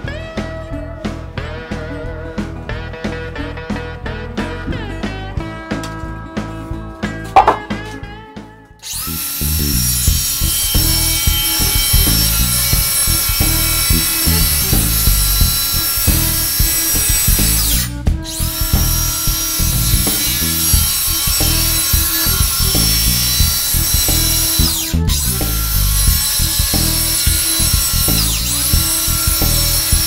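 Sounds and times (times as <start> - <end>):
background music with bass line: 0.0 - 30.0
circular saw cutting plywood: 7.3 - 8.0, 8.8 - 30.0.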